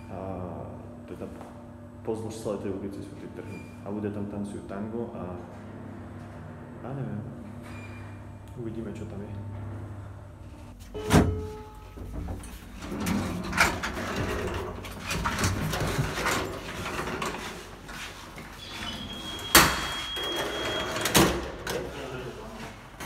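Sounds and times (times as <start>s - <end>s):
footsteps: 14.7s - 19.2s.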